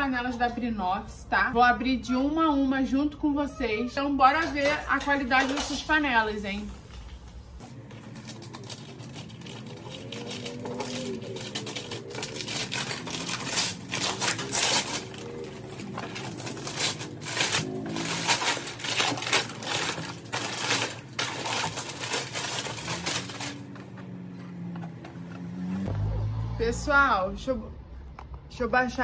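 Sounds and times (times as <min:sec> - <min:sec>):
paper tearing and crumpling: 0:07.7 - 0:24.0
scissors cutting paper: 0:08.0 - 0:25.9.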